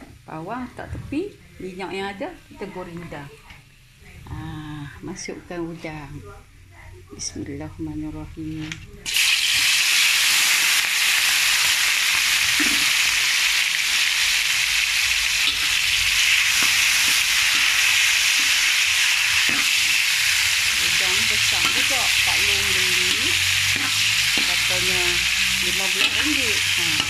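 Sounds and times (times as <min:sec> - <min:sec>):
prawns sizzling in hot oil: 0:09.0 - 0:27.0
metal spatula stirring in a wok: 0:15.2 - 0:27.0.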